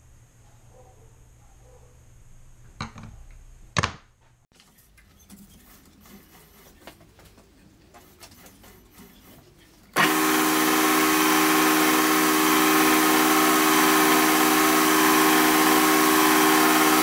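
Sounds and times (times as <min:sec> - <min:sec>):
faint clicks and rubbing: 0:04.5 - 0:09.9.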